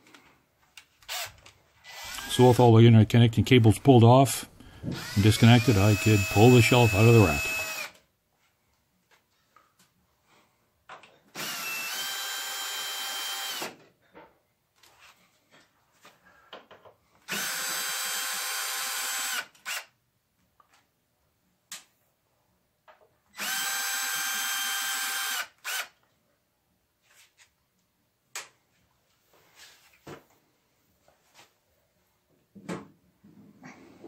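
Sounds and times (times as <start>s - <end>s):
cordless drill motor whine: 1.1s - 2.4s, 4.8s - 8.0s, 11.4s - 13.7s, 17.3s - 19.8s, 23.4s - 25.9s.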